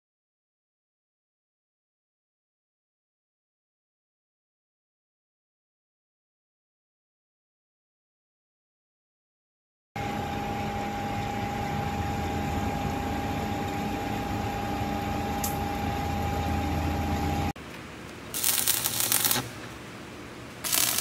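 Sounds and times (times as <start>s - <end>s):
machine hum: 10.0s - 21.0s
arc welder crackling: 18.1s - 19.8s, 20.6s - 21.0s.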